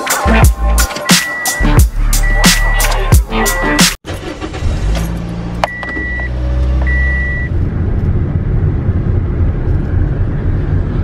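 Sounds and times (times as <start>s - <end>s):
engine and road noise rumble: 0.0s - 11.0s
dashboard warning beeps: 0.8s - 3.9s, 5.6s - 7.5s.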